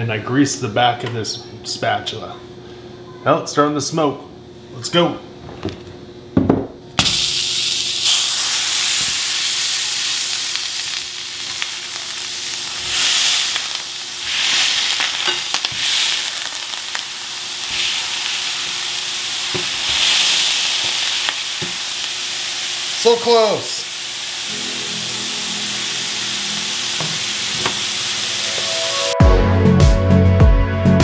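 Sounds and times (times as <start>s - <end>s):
meat sizzling in a skillet: 7.0s - 29.1s.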